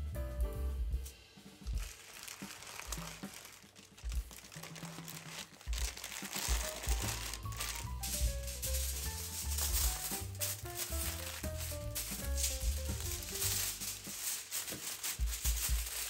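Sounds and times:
background music with bass: 0.0s - 1.1s, 5.8s - 16.0s
parchment paper crinkling: 1.5s - 16.0s.

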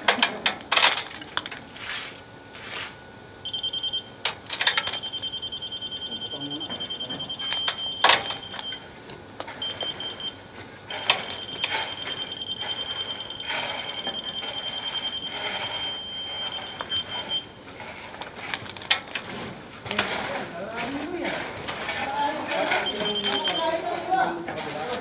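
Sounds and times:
rakes scraping wet concrete: 1.7s - 3.0s, 17.7s - 25.0s
high-pitched warning beeper: 3.4s - 8.8s, 9.6s - 17.5s, 22.5s - 24.1s.

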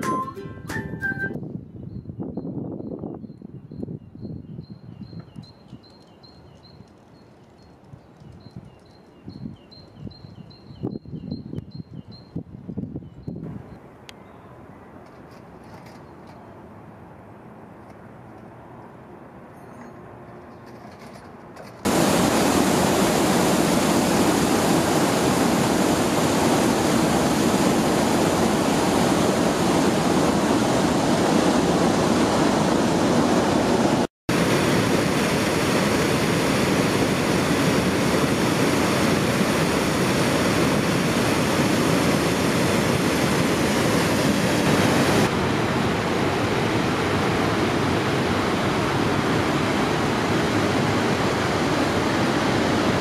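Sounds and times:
water crashing over weir: 21.8s - 53.0s.

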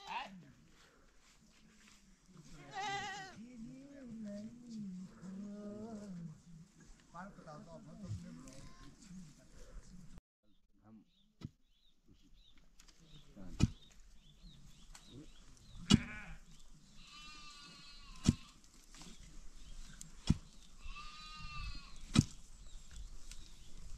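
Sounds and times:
sheep bleating: 2.6s - 3.4s, 16.0s - 16.4s, 17.0s - 18.6s, 20.8s - 22.0s.

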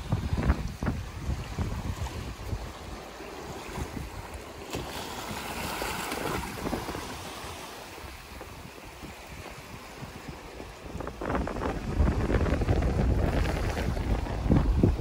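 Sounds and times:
wind buffeting microphone: 0.0s - 15.0s
small waves splashing on rocks: 0.2s - 10.1s.

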